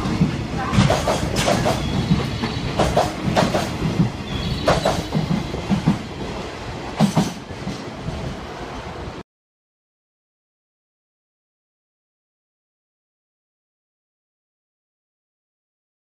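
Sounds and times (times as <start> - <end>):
wheels clicking over rail joints: 0.0 - 8.0
freight train wagons rolling past: 0.0 - 9.2.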